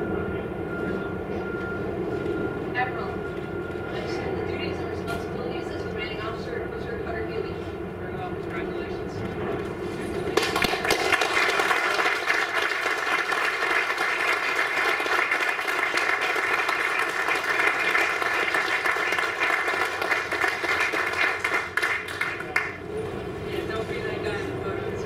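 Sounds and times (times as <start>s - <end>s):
audience applauding: 10.4s - 22.8s.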